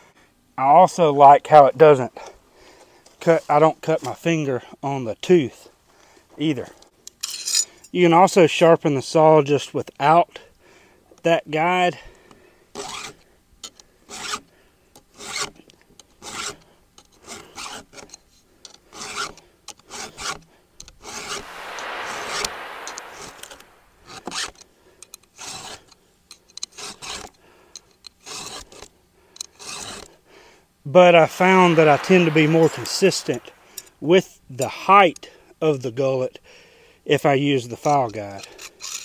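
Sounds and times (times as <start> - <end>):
file rasping on chainsaw chain: 28.2 - 28.8, 29.5 - 30.1, 38.4 - 39.0.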